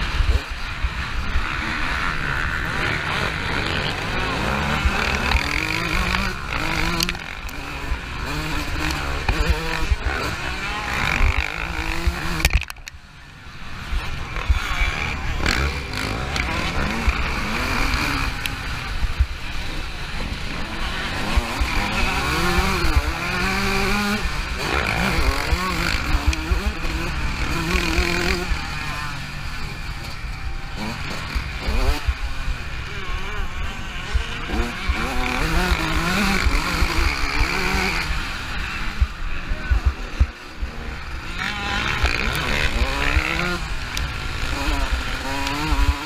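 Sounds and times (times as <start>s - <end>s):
motocross bike engine revving: 0.0s - 46.0s.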